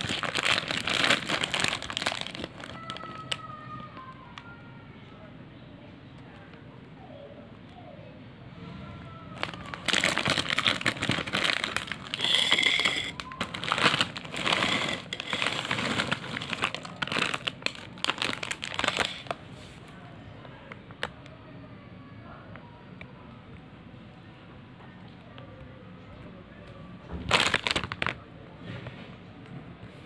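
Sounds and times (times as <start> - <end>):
snack bag crinkling: 0.0 - 3.4, 9.4 - 19.4, 27.3 - 28.2.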